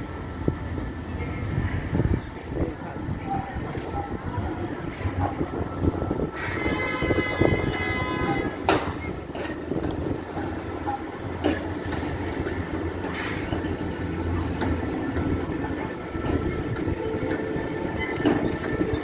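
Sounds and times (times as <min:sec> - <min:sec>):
tram wheels rumbling on rails: 0:00.0 - 0:19.0
wheels clacking over rail joints: 0:07.7 - 0:19.0.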